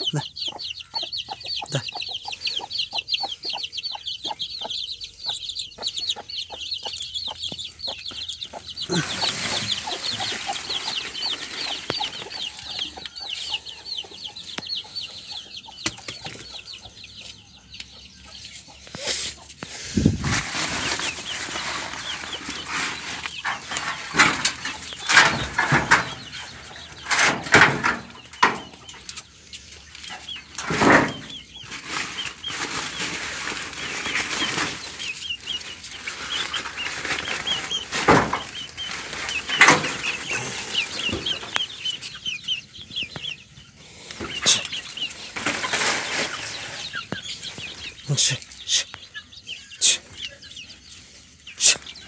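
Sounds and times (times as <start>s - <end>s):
chickens clucking: 0.0s - 52.0s
plastic sacks rustling and knocking: 8.9s - 12.4s, 19.9s - 26.3s, 30.6s - 41.6s, 44.1s - 48.0s.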